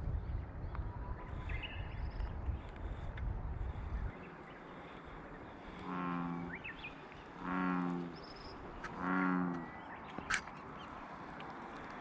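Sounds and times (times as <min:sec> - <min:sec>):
bullfrog croaking: 0:05.8 - 0:06.6, 0:07.4 - 0:08.2, 0:08.8 - 0:09.8.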